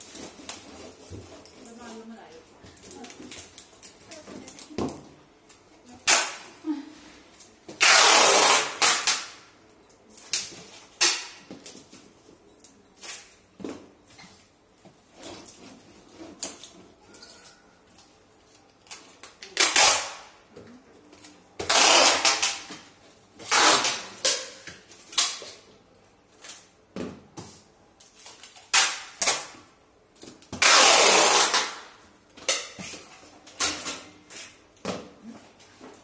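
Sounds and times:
packing tape ripping: 0:06.0 - 0:06.6, 0:07.7 - 0:09.4, 0:18.9 - 0:20.4, 0:21.6 - 0:22.8, 0:23.4 - 0:25.5, 0:28.2 - 0:29.6, 0:30.2 - 0:32.0.

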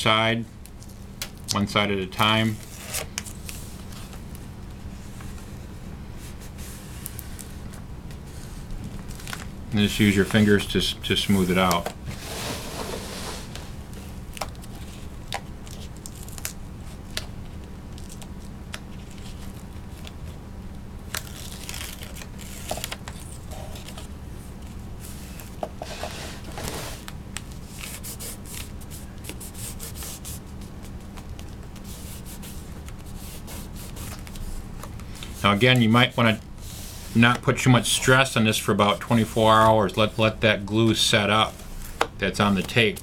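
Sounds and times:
steady low hum: 0:00.0 - 0:43.0
tape rustling and crinkling: 0:06.3 - 0:10.6, 0:12.8 - 0:37.9
paper backing peeling: 0:21.1 - 0:24.1.

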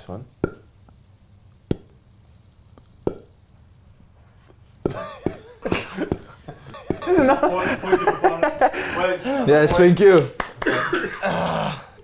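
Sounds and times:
mouth pops: 0:00.2 - 0:07.3.

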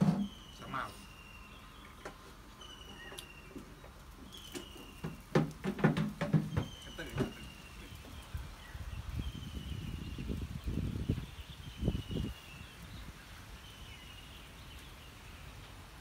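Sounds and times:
bird whistling call: 0:00.1 - 0:02.0, 0:02.6 - 0:03.6, 0:04.3 - 0:05.2.

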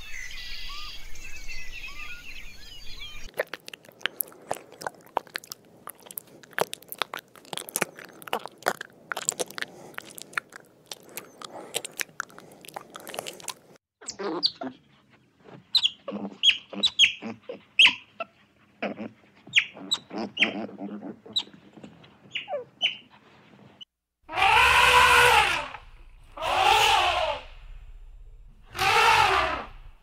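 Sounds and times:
quick chirps and clicks: 0:03.0 - 0:14.2
animal call rising and falling: 0:24.3 - 0:27.8, 0:28.7 - 0:30.0.

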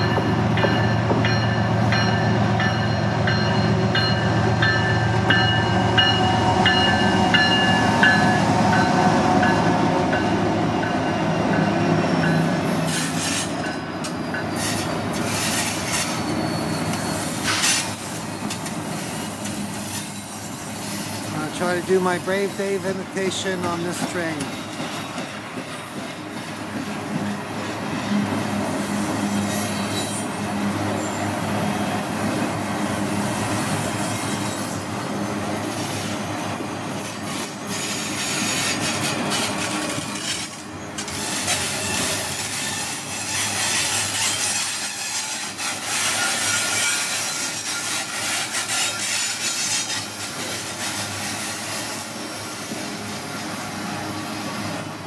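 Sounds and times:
train car clanks: 0:00.0 - 0:20.2, 0:22.8 - 0:27.4, 0:37.4 - 0:51.2
freight train rumbling past: 0:00.0 - 0:55.0.

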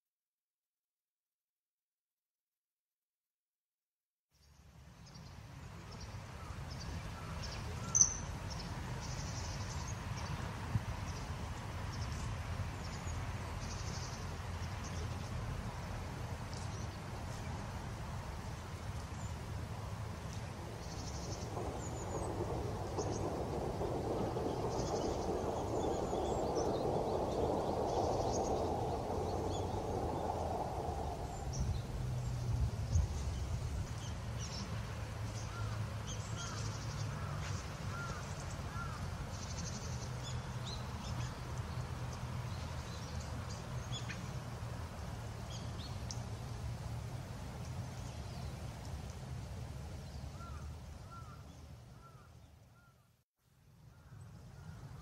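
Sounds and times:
steady low rumble: 0:08.2 - 0:35.2
rising and falling bird calls: 0:20.8 - 0:32.0.

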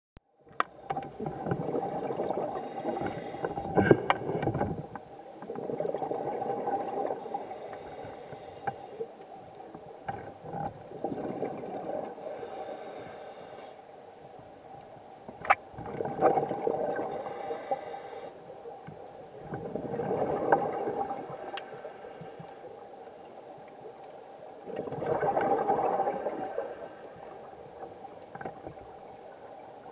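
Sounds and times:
exhaled bubbles gurgling: 0:00.8 - 0:09.0, 0:10.3 - 0:13.7, 0:15.4 - 0:22.6, 0:24.5 - 0:29.9
diver breathing through regulator: 0:02.4 - 0:03.9, 0:07.1 - 0:09.1, 0:12.1 - 0:13.8, 0:17.0 - 0:18.4, 0:20.7 - 0:22.7, 0:25.6 - 0:27.5.

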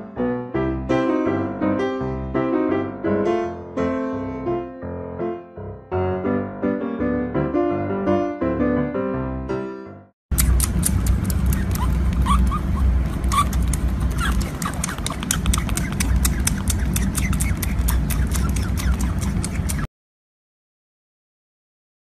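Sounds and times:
wet sucking clicks: 0:10.3 - 0:19.9
otter squeaking: 0:10.4 - 0:19.9.

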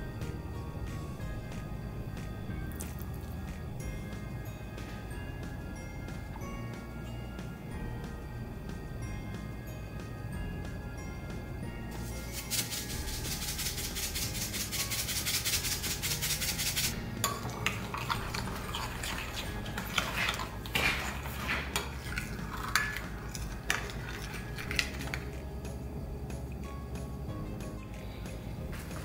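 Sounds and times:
light background music: 0:00.0 - 0:29.0
salt pattering into a bowl: 0:12.0 - 0:25.3
metal spoon scraping a bowl: 0:12.0 - 0:25.4.

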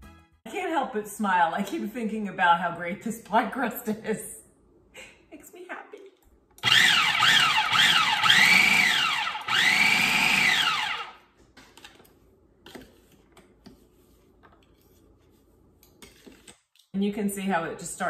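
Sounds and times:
food processor motor whining: 0:06.6 - 0:11.2.

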